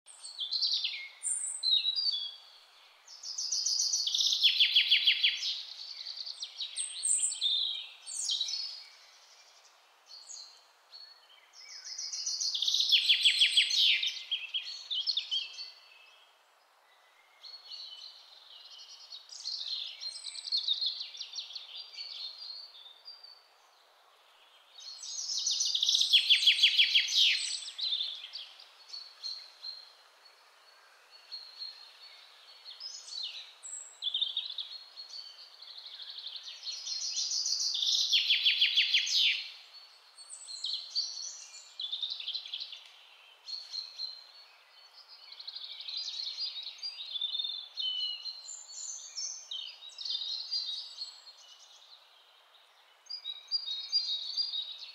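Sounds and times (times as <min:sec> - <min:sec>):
songbird song with trill: 0:00.0 - 0:54.9
bird chirps: 0:31.1 - 0:54.9.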